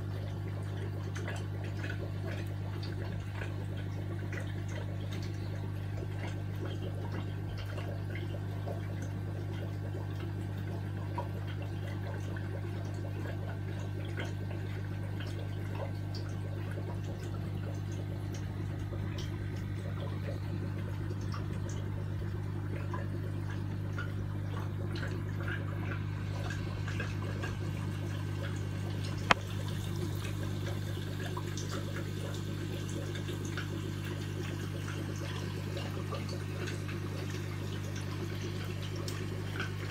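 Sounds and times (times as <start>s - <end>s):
aquarium water bubbling: 0.0s - 39.9s
tank equipment hum: 14.4s - 39.9s.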